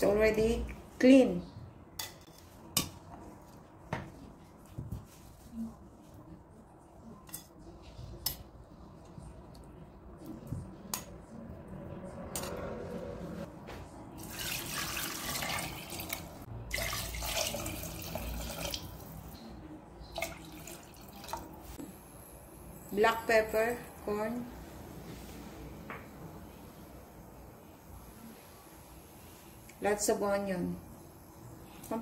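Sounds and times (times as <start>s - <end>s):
water pouring and splashing: 14.2s - 19.2s.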